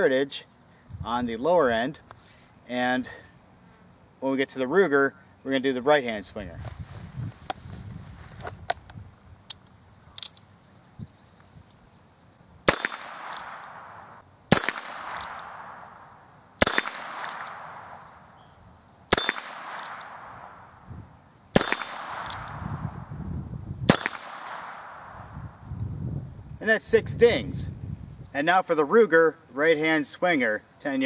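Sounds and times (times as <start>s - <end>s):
revolver gunshots: 12.6s - 18.1s, 19.1s - 20.6s, 21.5s - 22.9s, 23.9s - 25.3s.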